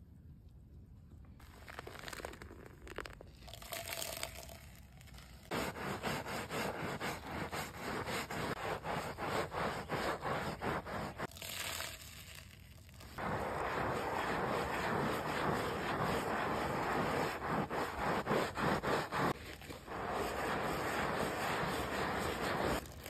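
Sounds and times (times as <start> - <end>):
water pouring onto mat: 1.4 - 5.6, 11.2 - 23.0
scrubbing rubber mat: 5.5 - 11.3, 13.2 - 23.0.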